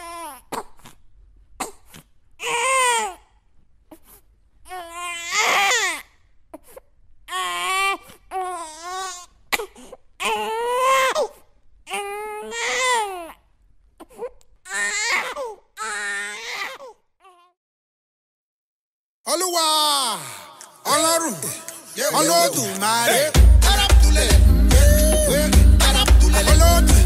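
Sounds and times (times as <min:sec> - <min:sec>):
baby crying: 0:02.4 - 0:03.3, 0:04.7 - 0:06.1, 0:07.3 - 0:13.4, 0:14.0 - 0:17.6.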